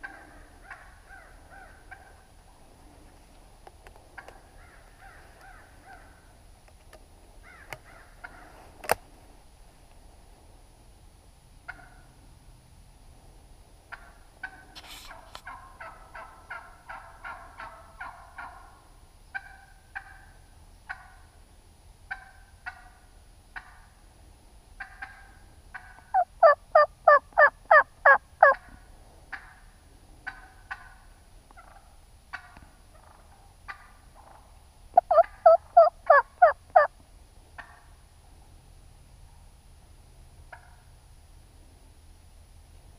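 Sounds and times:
wild turkeys calling: 0.0 - 3.2, 4.0 - 6.4, 7.4 - 9.0, 11.6 - 12.2, 13.9 - 21.4, 22.1 - 24.0, 24.7 - 38.5, 40.4 - 41.0.

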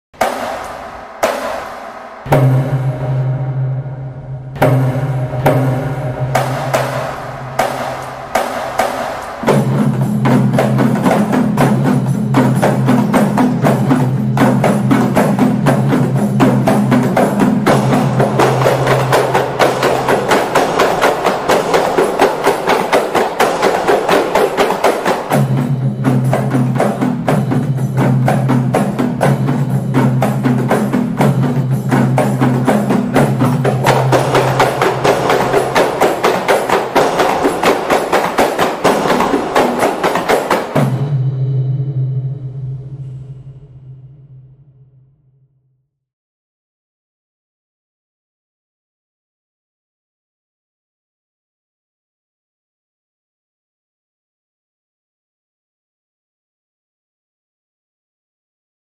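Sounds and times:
fast hand percussion: 0.2 - 42.6.

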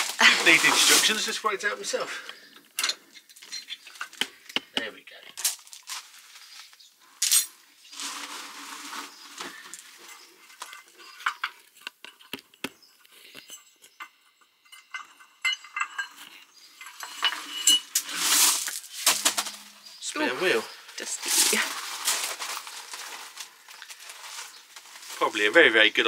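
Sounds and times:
metal scraping: 0.0 - 2.2, 7.3 - 12.3, 13.3 - 25.6
metal clinks and knocks: 9.7 - 20.0.

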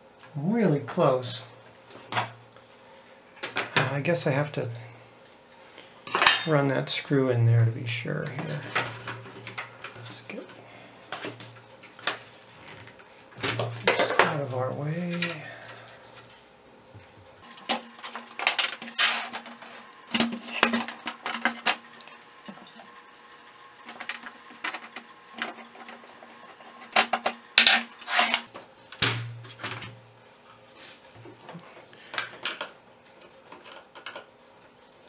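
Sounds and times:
plastic clicks and clatter: 32.1 - 34.3.

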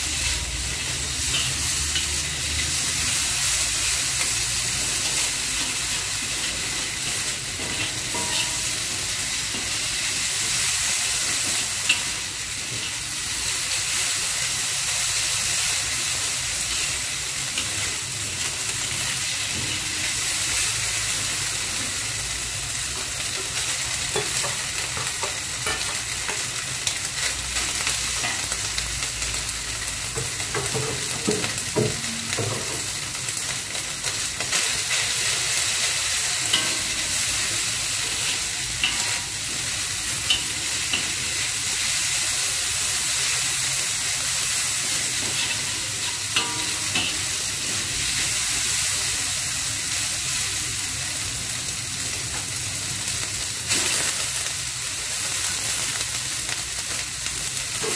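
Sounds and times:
food sizzling in hot oil: 0.0 - 57.9
metal spatula scraping a wok: 0.1 - 13.5, 35.6 - 41.5, 44.6 - 48.3
spatula tapping a wok: 7.2 - 9.8, 24.1 - 26.5, 30.1 - 33.0, 45.1 - 47.4.

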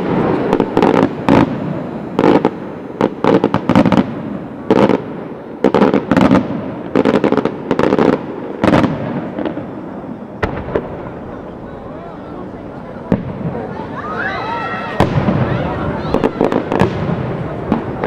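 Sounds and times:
firework shells bursting: 0.0 - 14.0
rumbling echo: 6.4 - 14.2.

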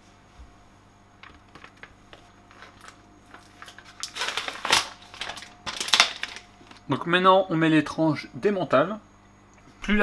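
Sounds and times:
plastic packaging crinkling: 1.2 - 6.9.

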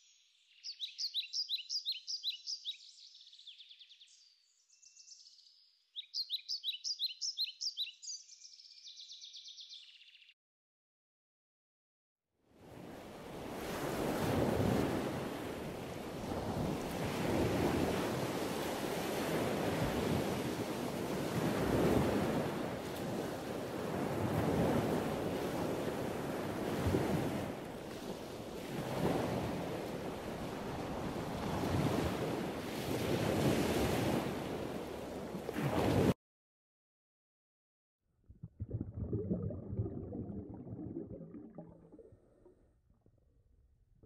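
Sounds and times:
waves breaking on a beach: 12.6 - 36.2.

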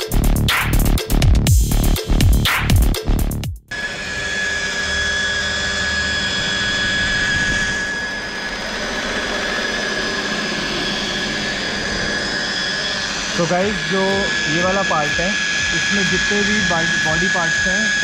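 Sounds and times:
machine polisher whining: 3.7 - 18.0.

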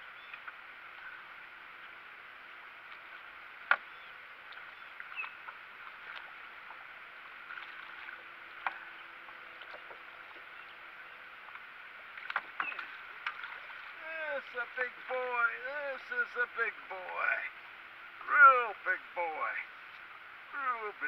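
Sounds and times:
water lapping against boat hull: 2.7 - 14.0.

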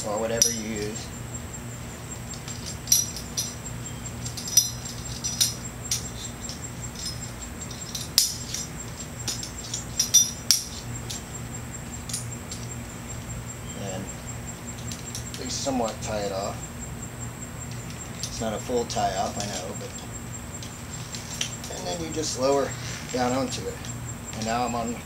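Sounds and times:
metal climbing hardware clinking: 0.0 - 1.0, 2.2 - 12.8
steady low hum: 0.0 - 25.0.

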